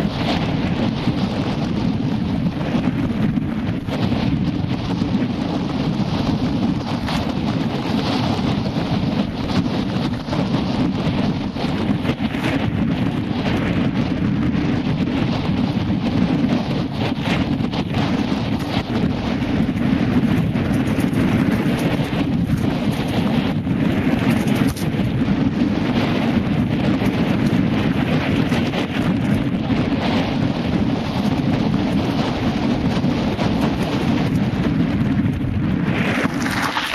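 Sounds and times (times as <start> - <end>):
rumble and rattle over gravel: 0.0 - 36.9
wind buffeting microphone: 0.0 - 36.9
tyre rumbling on gravel: 19.8 - 25.1, 34.9 - 36.9.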